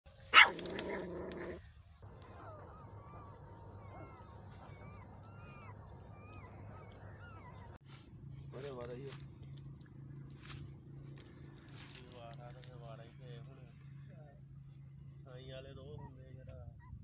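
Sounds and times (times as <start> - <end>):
puppies squeaking and whimpering: 2.0 - 7.9.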